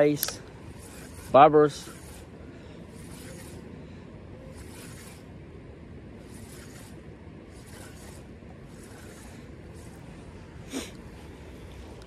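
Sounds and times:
fishing reel whir: 0:00.0 - 0:03.7, 0:04.4 - 0:05.4, 0:06.2 - 0:10.0.

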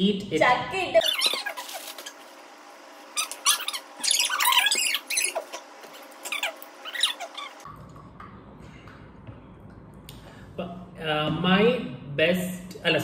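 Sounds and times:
high squeaky squeals: 0:01.0 - 0:02.2, 0:03.2 - 0:05.6, 0:06.2 - 0:07.6.

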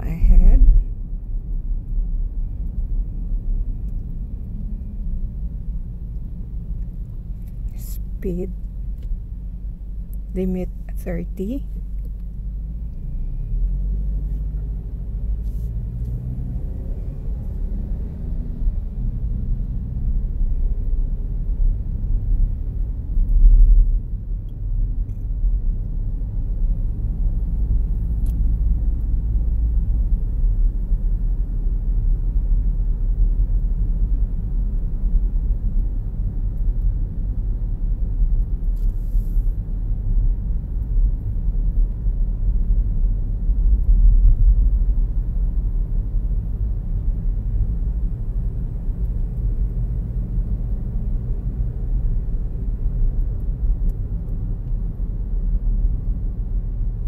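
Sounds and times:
car interior road and engine rumble: 0:00.0 - 0:57.0.

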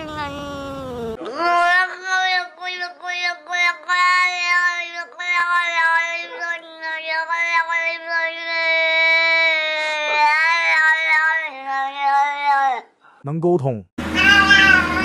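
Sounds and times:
cat meowing: 0:14.2 - 0:15.0.

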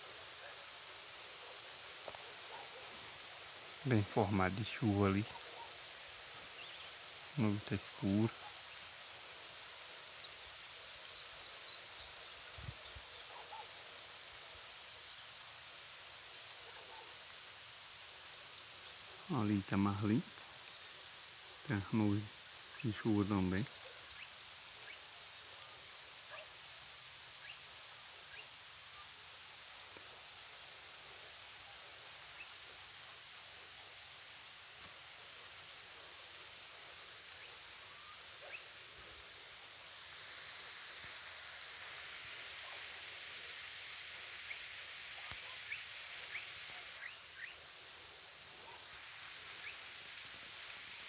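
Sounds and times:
soft hiss: 0:00.0 - 0:51.0.

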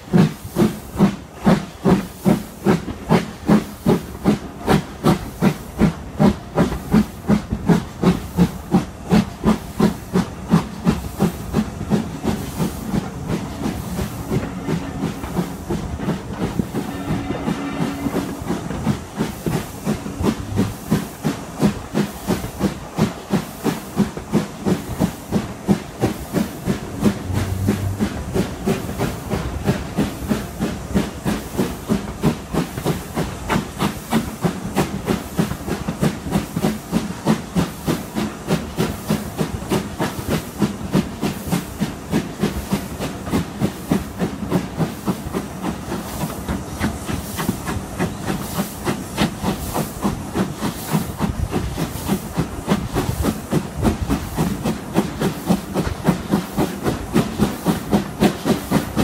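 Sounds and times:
steam locomotive chuffing: 0:00.0 - 0:59.0.

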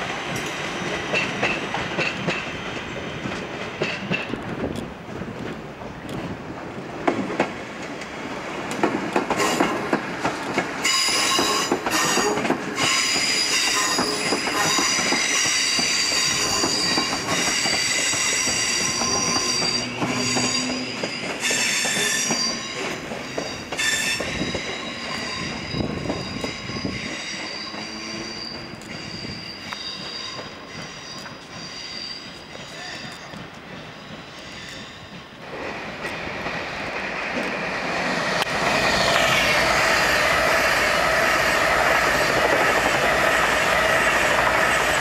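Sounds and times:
train wheels clicking over rail joints: 0:00.0 - 0:45.0
train wheel flanges squealing: 0:09.2 - 0:35.4.

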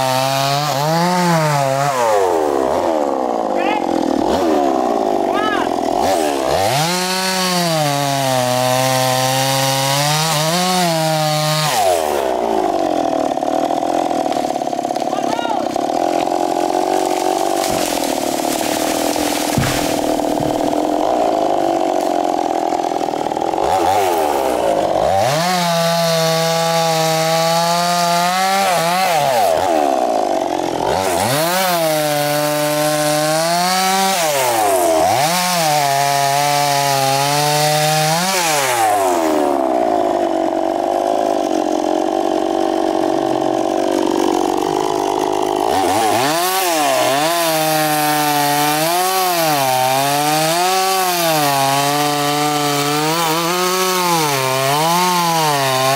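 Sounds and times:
chainsaw cutting log: 0:00.0 - 0:55.9.

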